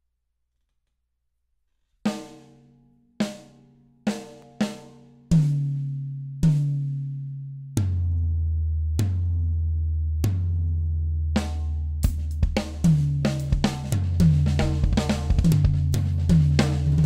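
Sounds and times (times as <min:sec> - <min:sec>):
drum hits with wooden sticks: 0:11.4 - 0:17.0.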